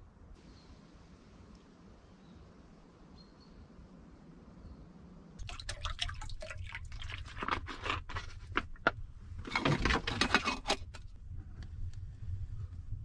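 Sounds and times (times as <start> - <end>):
rustling and clicking of handling: 7.2 - 12.0
low steady rumble: 8.1 - 13.0.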